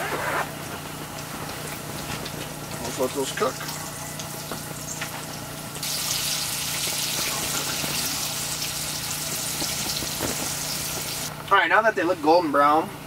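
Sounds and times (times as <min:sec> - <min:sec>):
fish frying in oil: 0:01.0 - 0:11.3.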